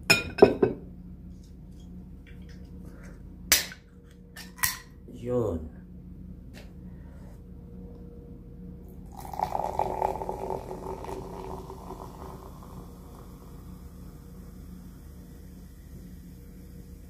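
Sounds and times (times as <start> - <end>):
soda fizzing pour into glass: 9.1 - 13.8.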